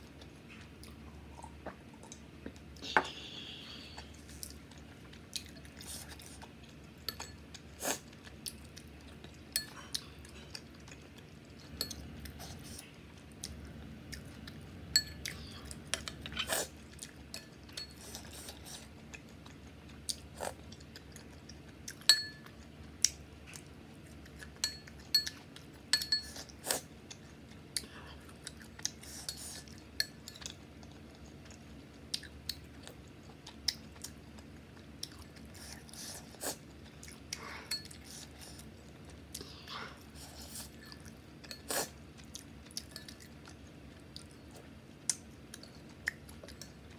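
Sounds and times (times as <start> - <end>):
chewing: 3.9 - 46.9
spoon clinking against ceramic bowl: 14.9 - 15.2, 22.1 - 22.5, 24.6 - 26.4.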